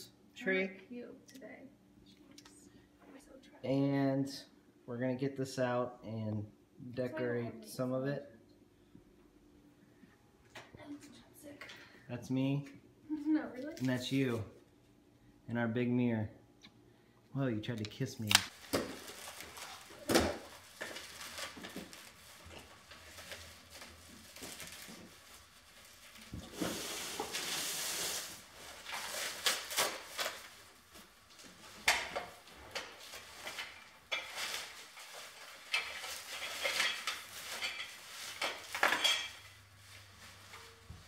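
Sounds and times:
plastic branches rustling: 0:18.3 - 0:41.0.

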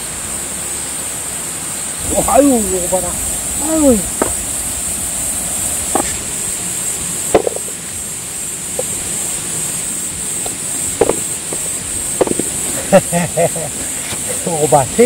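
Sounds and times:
steady high hiss: 0:00.0 - 0:15.0
wind rumbling on microphone: 0:02.0 - 0:12.9.

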